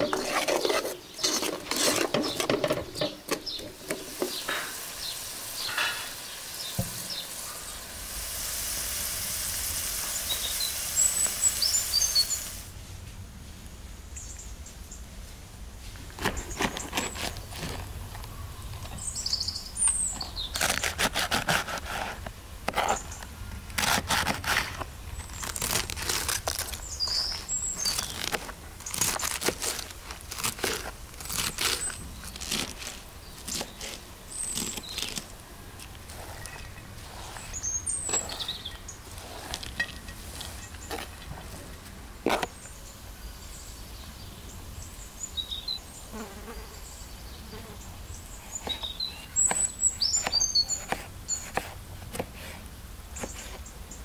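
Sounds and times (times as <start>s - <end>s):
knife cutting cabbage: 0.0s - 2.5s, 16.2s - 17.9s, 20.2s - 23.1s, 23.7s - 35.3s, 48.6s - 52.6s
birds chirping: 0.0s - 7.9s, 9.9s - 12.6s, 16.3s - 20.9s, 26.6s - 29.3s, 31.6s - 41.8s, 42.4s - 51.6s.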